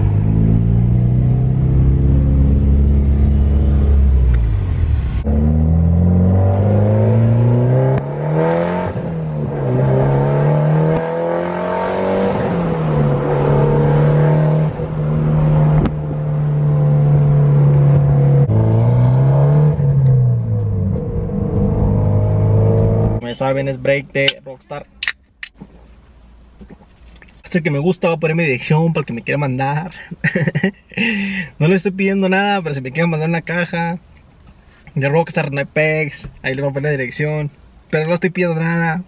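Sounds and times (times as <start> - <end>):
car engine accelerating through gears: 0.0 - 23.2.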